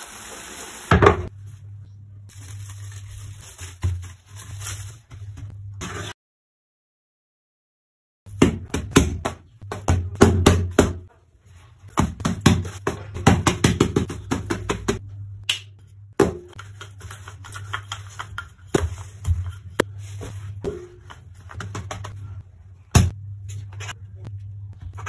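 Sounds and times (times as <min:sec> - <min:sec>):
low steady hum: 0:14.1 - 0:25.0
hands patting dough: 0:16.2 - 0:22.4.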